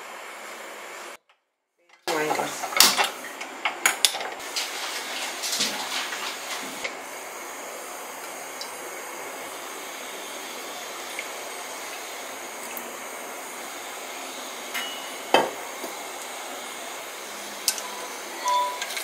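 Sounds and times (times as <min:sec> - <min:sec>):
gas burner hissing: 0:00.0 - 0:01.2, 0:02.1 - 0:19.0.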